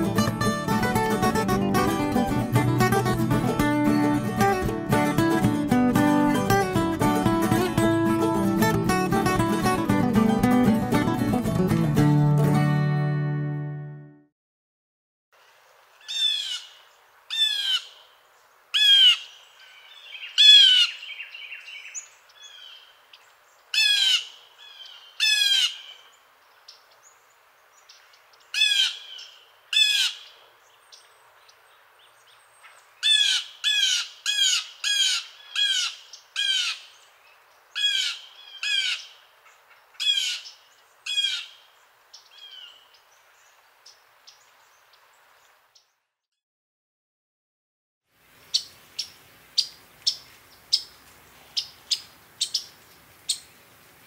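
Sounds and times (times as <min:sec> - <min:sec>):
blue jay calling: 0:16.0 - 0:18.1, 0:18.7 - 0:26.8, 0:27.9 - 0:31.0, 0:32.6 - 0:37.1, 0:37.7 - 0:44.8, 0:48.4 - 0:53.6.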